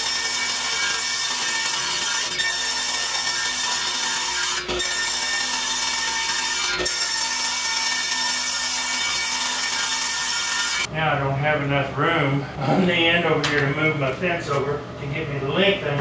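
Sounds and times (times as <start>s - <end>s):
table saw ripping plywood: 0.0s - 10.9s.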